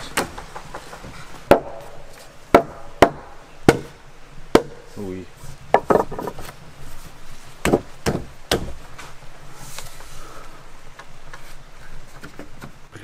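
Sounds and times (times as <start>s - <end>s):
wooden logs knocking: 0.0s - 4.9s, 5.7s - 6.6s, 7.6s - 9.1s.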